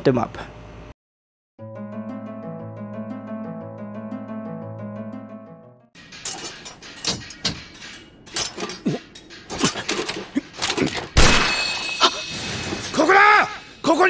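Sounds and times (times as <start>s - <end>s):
sharp knocks and clanks: 6.0s - 13.1s.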